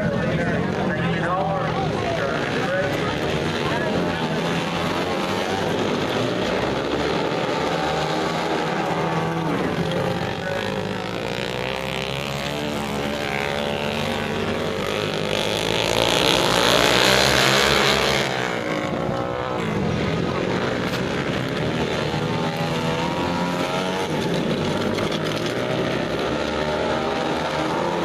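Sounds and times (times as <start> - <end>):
motorcycle engines revving: 0.0 - 28.0.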